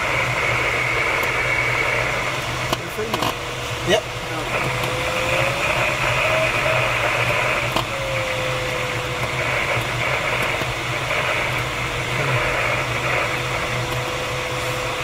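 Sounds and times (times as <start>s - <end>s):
airflow rushing around canopy: 3.3s - 15.0s
electronic variometer tone: 4.5s - 15.0s.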